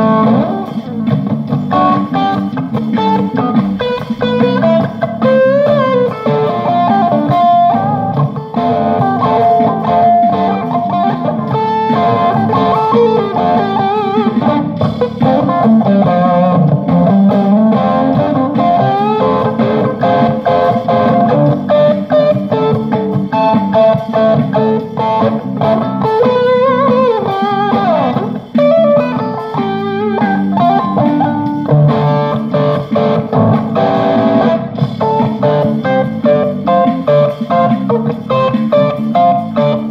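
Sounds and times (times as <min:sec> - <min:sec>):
electric guitar lead lines: 0:00.0 - 0:39.9
steady lower guitar sound: 0:00.0 - 0:39.9.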